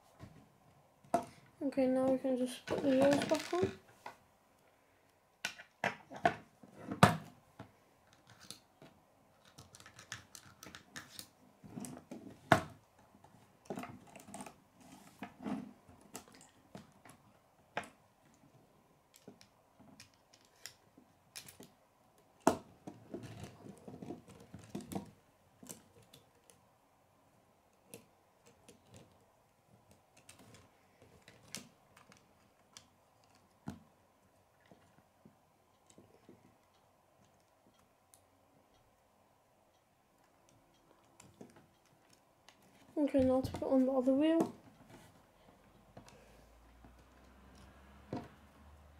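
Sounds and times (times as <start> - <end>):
plastic parts clicking: 9.4 - 11.3, 19.1 - 21.8.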